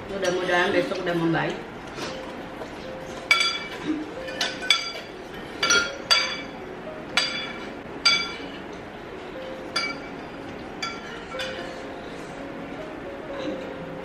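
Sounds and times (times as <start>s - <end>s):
spoons clinking on bowls: 3.3s - 6.6s, 7.2s - 8.6s, 10.8s - 11.7s.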